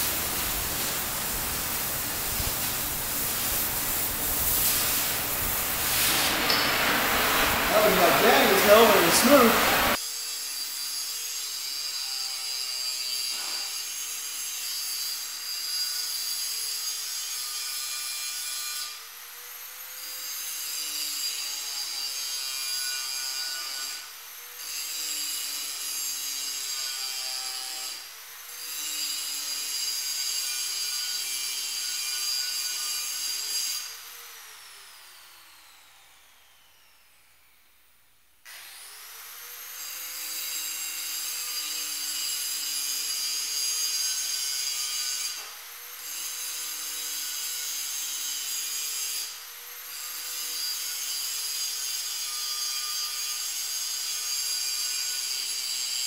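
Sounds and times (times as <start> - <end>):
angle grinder grinding steel: 0.0 - 10.0.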